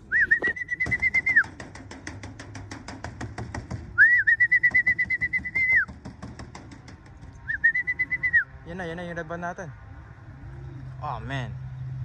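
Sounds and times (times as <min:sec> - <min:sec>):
trilling whistle: 0:00.1 - 0:01.5, 0:04.0 - 0:05.9, 0:07.4 - 0:08.5.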